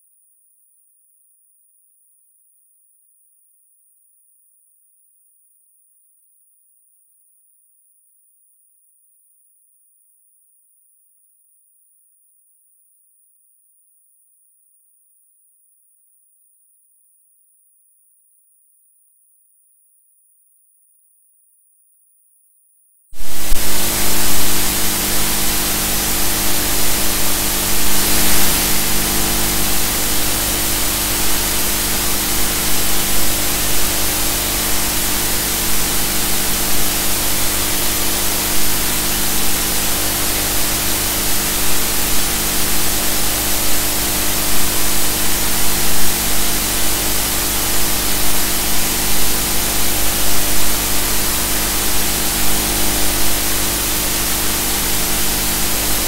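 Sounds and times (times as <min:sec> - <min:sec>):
loud even hiss: 0:23.2 - 0:56.0.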